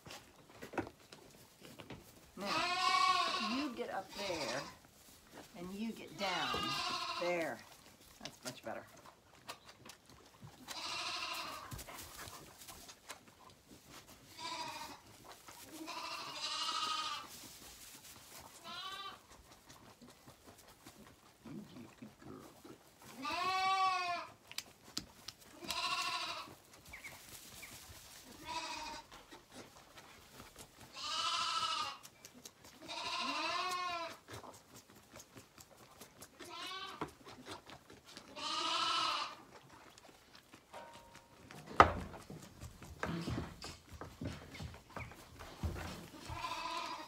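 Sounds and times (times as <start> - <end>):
lambs bleating: 2.4 - 4.8, 6.0 - 7.6, 10.6 - 11.8, 14.3 - 15.0, 15.7 - 17.3, 18.5 - 19.3, 23.2 - 24.4, 25.5 - 26.6, 28.2 - 29.2, 30.9 - 32.0, 32.8 - 34.2, 36.4 - 37.1, 38.2 - 39.4, 46.1 - 47.0.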